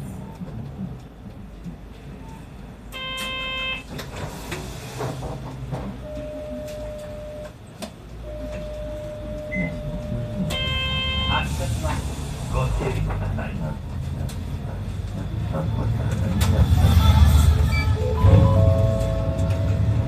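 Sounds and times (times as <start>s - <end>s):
bus engine rumble: 0.0s - 20.0s
long electronic beep: 8.3s - 11.5s.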